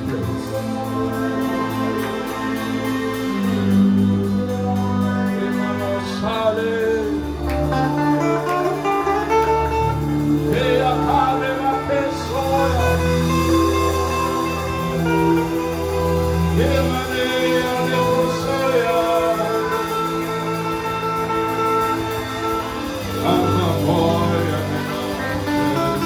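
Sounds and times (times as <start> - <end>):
keyboard sustained chords: 0.0 - 26.0
man singing a chant: 23.2 - 26.0.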